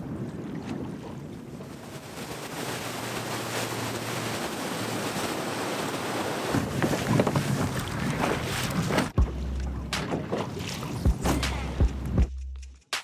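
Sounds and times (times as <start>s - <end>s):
wind buffeting microphone: 0.0s - 9.2s
water splashing along boat hull: 0.0s - 12.1s.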